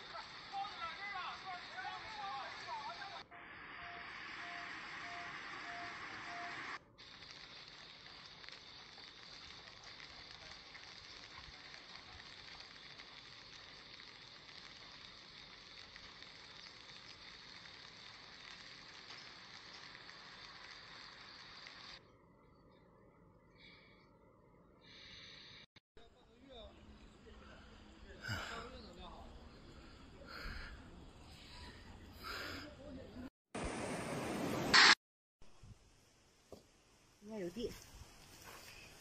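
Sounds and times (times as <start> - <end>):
faint beeps: 3.3 - 6.8.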